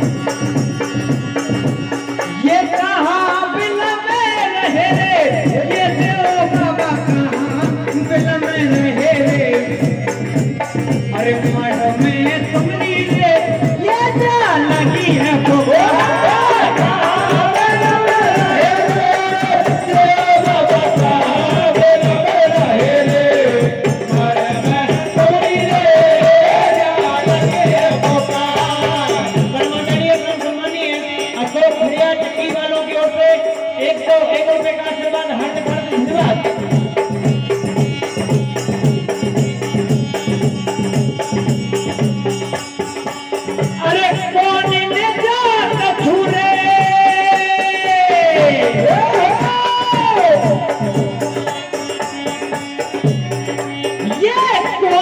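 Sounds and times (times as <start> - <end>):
hand drum: 0.0 - 3.7, 35.4 - 55.0
harmonium melody: 0.0 - 55.0
rattling percussion: 0.0 - 55.0.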